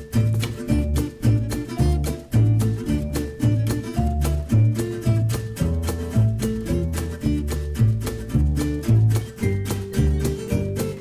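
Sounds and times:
upbeat guitar music with beat: 0:00.0 - 0:11.0.

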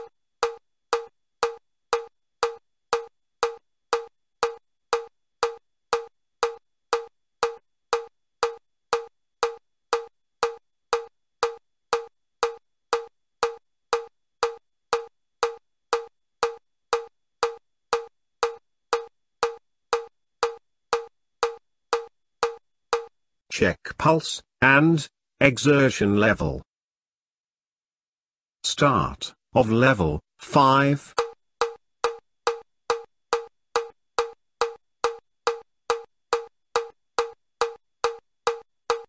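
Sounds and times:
metronome clicking: 0:00.0 - 0:23.1, 0:31.2 - 0:39.0.

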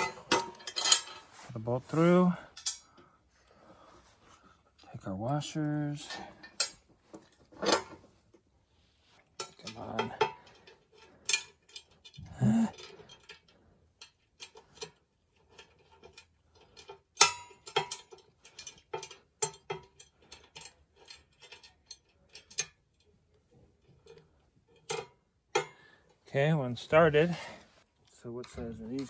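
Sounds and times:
metal nut clinking on a bolt: 0:00.0 - 0:01.3, 0:06.0 - 0:08.0, 0:09.2 - 0:25.8.

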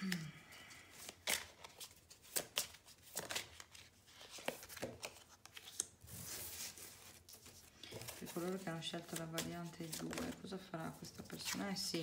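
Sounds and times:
cards sliding rustle: 0:00.9 - 0:10.4.

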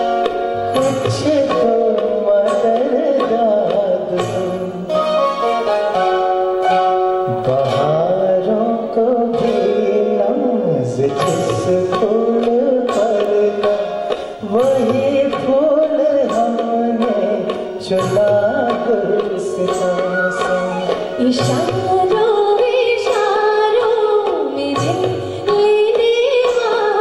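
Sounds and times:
band accompaniment: 0:00.0 - 0:27.0
man singing into a microphone: 0:00.6 - 0:05.1, 0:07.2 - 0:23.4
steady percussion beat: 0:11.0 - 0:23.4.

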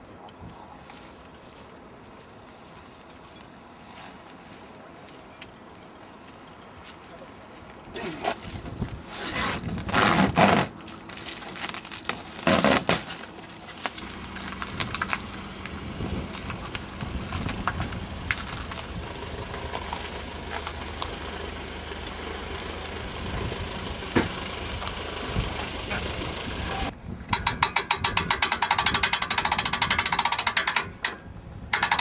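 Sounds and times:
vehicle engine running low revs: 0:14.0 - 0:27.0.

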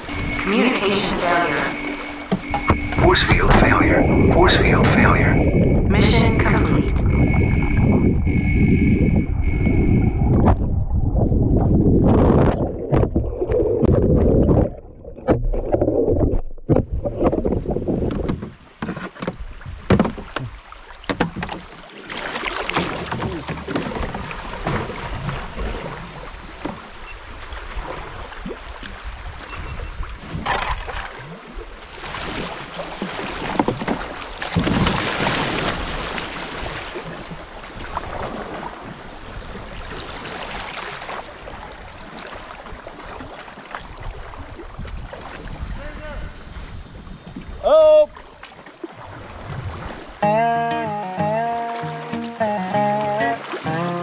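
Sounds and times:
river water rushing and splashing: 0:00.0 - 0:05.4, 0:18.5 - 0:45.8, 0:48.2 - 0:54.0
muffled underwater rush: 0:00.0 - 0:18.3, 0:31.4 - 0:50.2.

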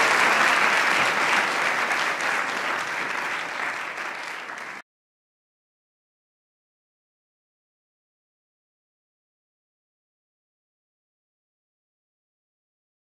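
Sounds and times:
audience applauding: 0:00.0 - 0:04.8.

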